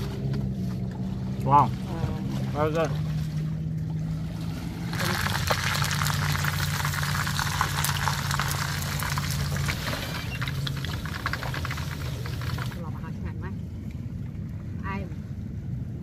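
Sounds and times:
low hum: 0:00.0 - 0:16.0
fish sizzling in hot oil: 0:04.9 - 0:12.8.

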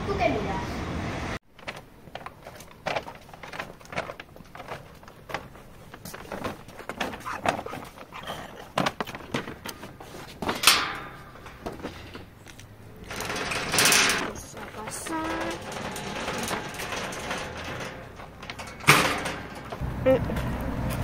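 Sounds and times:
paper bag rustling: 0:01.5 - 0:10.6
light footsteps: 0:03.7 - 0:10.6
metal gate sound: 0:10.4 - 0:19.8.

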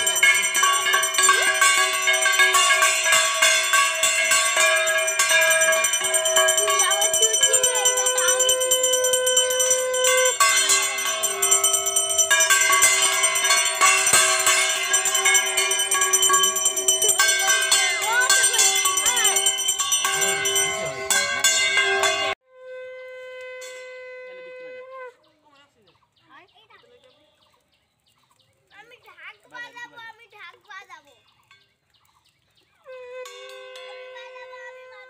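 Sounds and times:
handheld brass bell rung rapidly: 0:00.0 - 0:22.4.

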